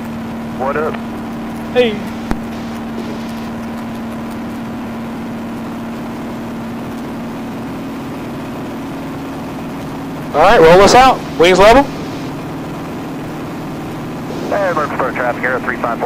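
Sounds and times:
propeller plane engine droning: 0.0 - 16.0.

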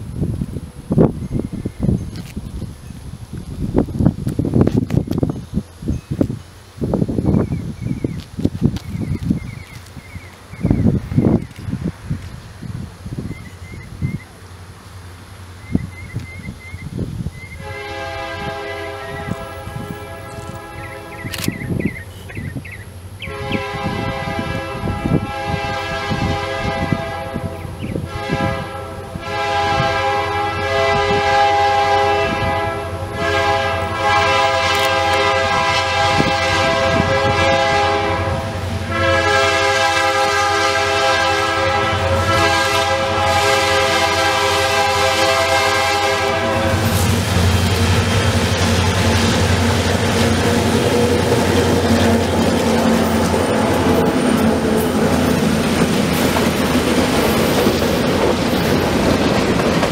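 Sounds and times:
train wheels rolling: 0.0 - 16.7, 30.9 - 59.9
locomotive engine rumble: 0.0 - 59.9
locomotive air horn blasts: 17.6 - 21.5, 23.2 - 55.5.

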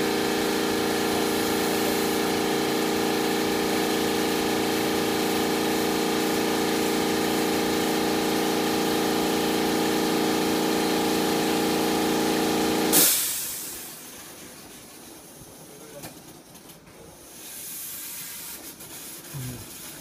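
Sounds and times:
air compressor running: 0.0 - 15.6, 17.2 - 20.0
air release hiss: 12.9 - 14.0, 17.4 - 20.0.

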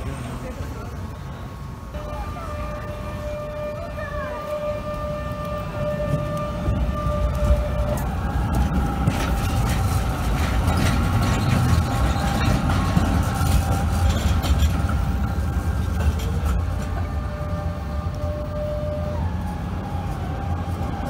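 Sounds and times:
tram wheels rumbling: 0.0 - 21.0
wheels clacking over rail joints: 4.5 - 19.0.

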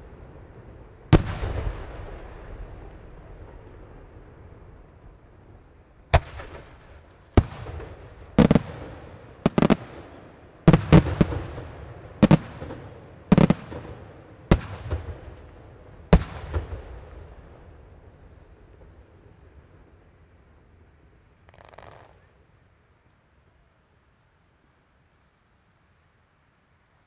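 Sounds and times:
firework shells booming: 6.2 - 15.5.

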